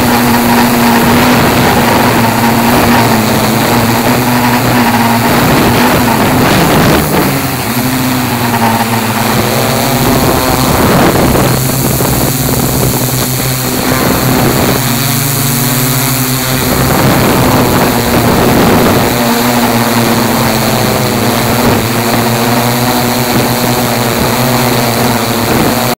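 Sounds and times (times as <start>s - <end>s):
drone motors and propellers humming: 0.0s - 26.0s
wind rushing over microphone: 0.0s - 26.0s.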